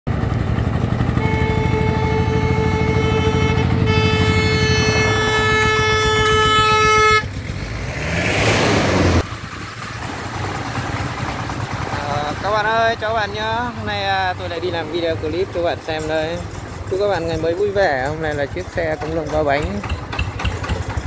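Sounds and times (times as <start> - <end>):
diesel engine thudding: 0.1 - 21.0
vehicle horn: 1.1 - 7.4.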